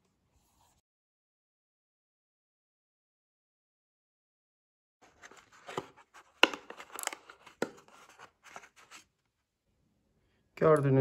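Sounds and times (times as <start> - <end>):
cardboard rustling and scraping: 5.0 - 9.1.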